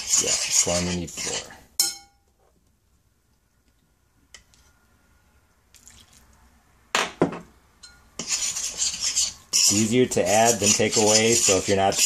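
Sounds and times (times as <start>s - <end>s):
metal spoon clinking on bowl: 1.8s - 2.2s
faint water drips: 5.7s - 6.4s.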